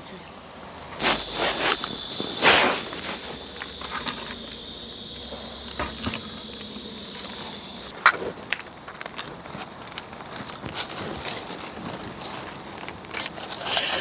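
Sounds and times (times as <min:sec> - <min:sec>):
cicadas droning: 0:01.0 - 0:07.9.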